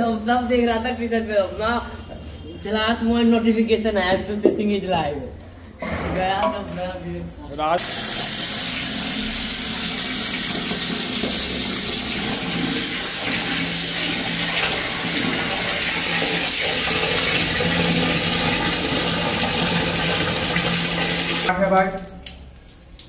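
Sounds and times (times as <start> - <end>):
tap water pouring into pot: 7.8 - 23.0.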